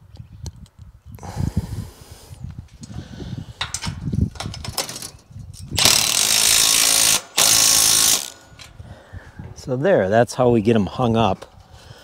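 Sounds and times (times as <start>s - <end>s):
hardware knocking and rattling: 3.6s - 8.8s
power drill driving fastener: 5.8s - 8.8s.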